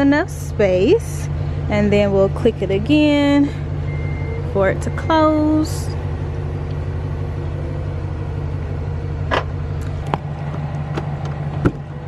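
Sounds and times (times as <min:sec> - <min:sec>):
car engine idling: 0:00.0 - 0:12.0
liftgate motor: 0:03.1 - 0:12.0.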